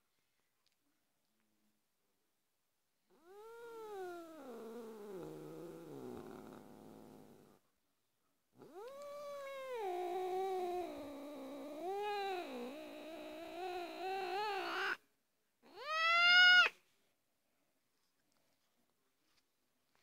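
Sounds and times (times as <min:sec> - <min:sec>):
cat yowling: 0:08.6 - 0:15.0, 0:15.7 - 0:16.8.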